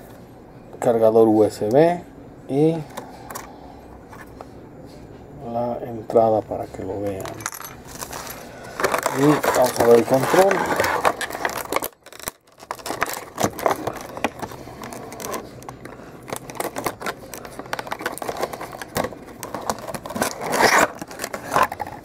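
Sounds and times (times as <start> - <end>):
plastic wrapping crinkling: 7.8 - 22.0.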